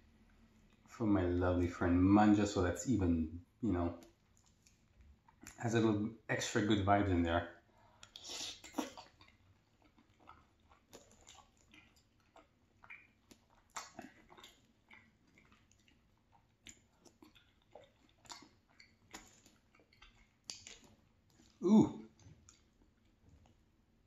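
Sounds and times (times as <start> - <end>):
chewing food: 0.2 - 0.9, 3.9 - 5.6, 7.7 - 24.0
wet mouth clicks and smacks: 4.0 - 5.6, 8.0 - 23.6.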